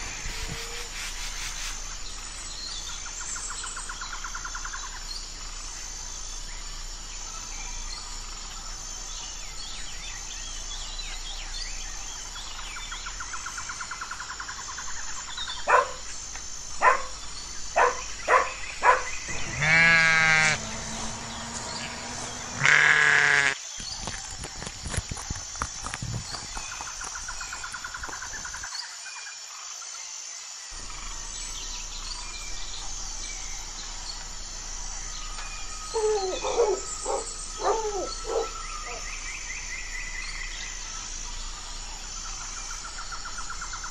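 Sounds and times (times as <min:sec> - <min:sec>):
bird chirps and trills: 0:00.0 - 0:25.4, 0:30.8 - 0:43.9
pulsing insect tone: 0:00.0 - 0:43.9
sheep bleating: 0:19.3 - 0:20.6, 0:22.5 - 0:23.6.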